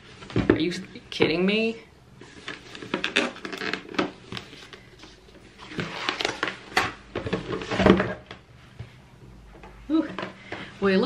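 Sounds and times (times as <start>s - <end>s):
cardboard rustling and scraping: 2.2s - 8.3s.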